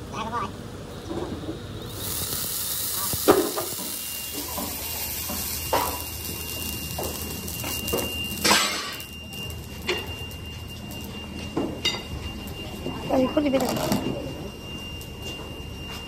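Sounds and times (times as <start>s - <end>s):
steady hiss: 1.7s - 9.8s.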